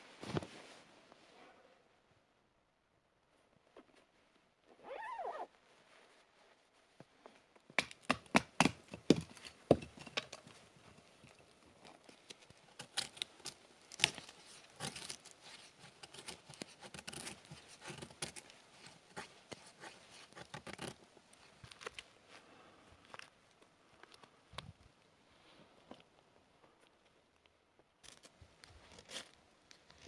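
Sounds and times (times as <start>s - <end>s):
rustling and crinkling: 0.0s - 1.4s, 3.2s - 7.8s, 9.2s - 30.0s.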